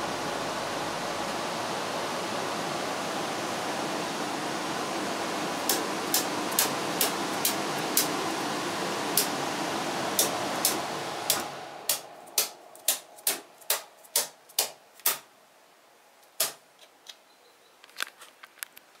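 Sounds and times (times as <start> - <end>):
air conditioning fan noise: 0.0 - 16.8
circuit breakers clicking: 5.6 - 8.4, 9.1 - 9.4, 10.1 - 15.3.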